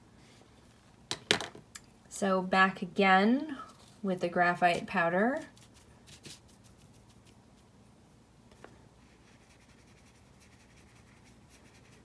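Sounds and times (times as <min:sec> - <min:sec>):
paintbrush scratching on paper: 0:05.4 - 0:07.7, 0:09.0 - 0:12.0.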